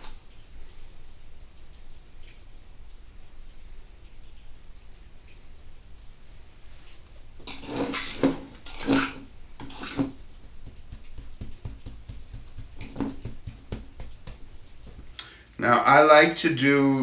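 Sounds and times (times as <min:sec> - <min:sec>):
metal spoon scraping bowl: 0:07.4 - 0:10.2.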